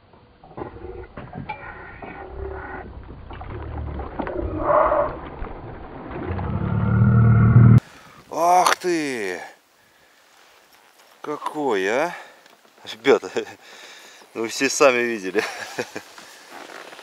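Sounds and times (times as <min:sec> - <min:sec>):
low rumble: 0:00.3 - 0:07.8.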